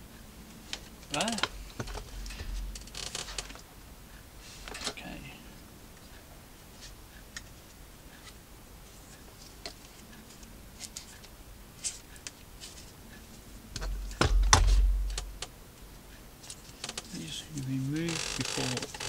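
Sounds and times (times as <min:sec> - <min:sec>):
bump with low rumble: 0:01.8 - 0:03.6, 0:13.8 - 0:15.4.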